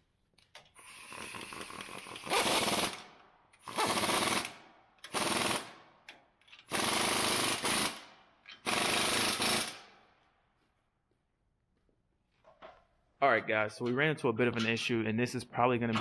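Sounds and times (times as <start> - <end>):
pneumatic impact wrench hammering: 0.6 - 5.6, 6.5 - 9.8.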